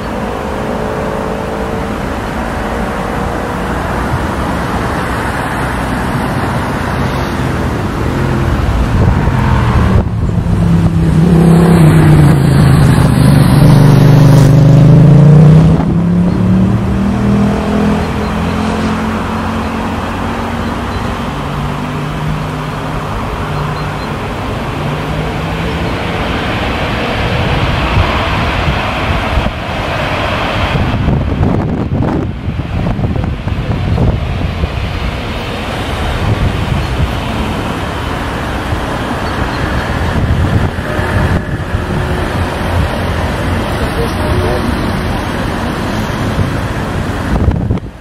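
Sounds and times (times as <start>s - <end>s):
jet airliner passing: 0.0s - 48.0s.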